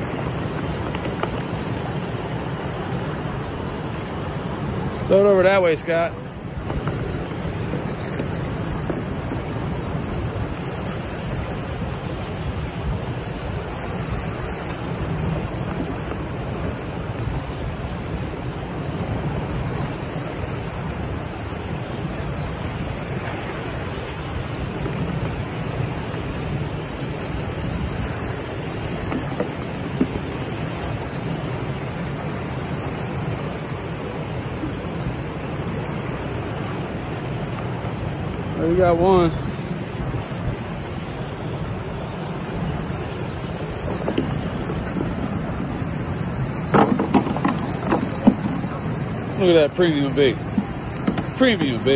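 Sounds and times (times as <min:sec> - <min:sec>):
churning water rushing: 0:00.0 - 0:51.9
wind noise on microphone: 0:06.5 - 0:33.4.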